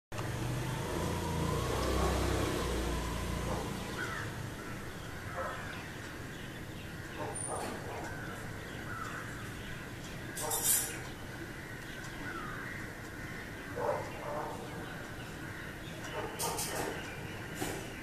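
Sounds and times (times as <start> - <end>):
low vehicle engine rumble: 0.1 - 7.6
bird calls and chirps: 3.5 - 18.0.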